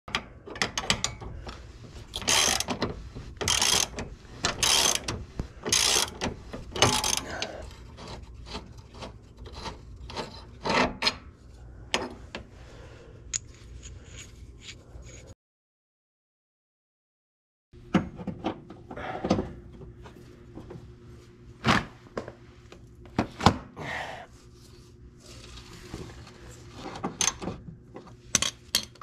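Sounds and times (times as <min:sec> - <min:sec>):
ratcheting wrench clicking: 0:02.1 - 0:02.7, 0:03.4 - 0:05.1, 0:05.7 - 0:06.2, 0:06.8 - 0:07.4.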